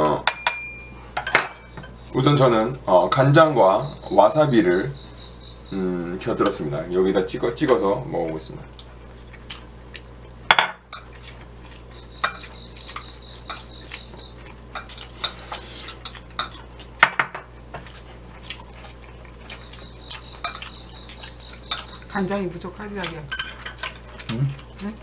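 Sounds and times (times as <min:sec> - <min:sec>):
chopsticks clinking on ceramic bowl: 0:12.2 - 0:18.0, 0:19.5 - 0:24.9.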